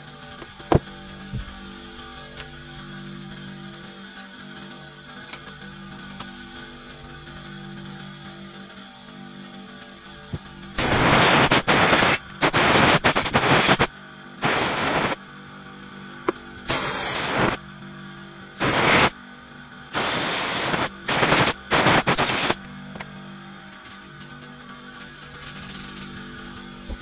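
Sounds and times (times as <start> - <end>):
pressurised air jet hissing: 10.8 - 15.2, 16.7 - 17.6, 18.6 - 19.2, 19.9 - 22.6.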